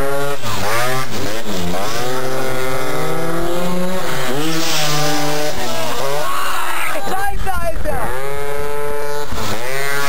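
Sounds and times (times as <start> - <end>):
scooter engines revving: 0.0 - 10.0.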